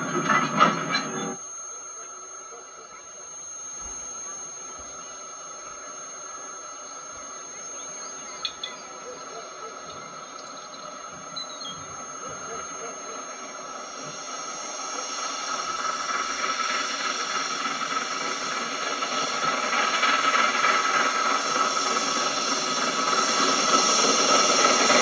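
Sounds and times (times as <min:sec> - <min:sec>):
high-pitched tones: 0:00.0 - 0:19.6
steam locomotive approaching: 0:00.0 - 0:25.0
hiss: 0:02.2 - 0:25.0.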